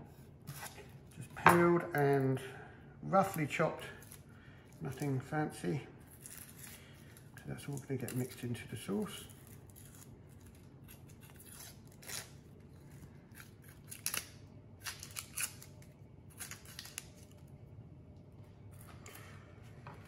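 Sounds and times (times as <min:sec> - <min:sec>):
knife snipping onion skin: 0:09.3 - 0:12.4, 0:13.0 - 0:17.3.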